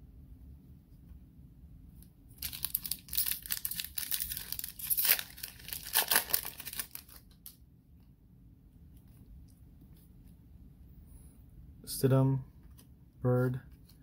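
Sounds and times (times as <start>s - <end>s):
foil wrapper tearing and crinkling: 2.4s - 7.5s.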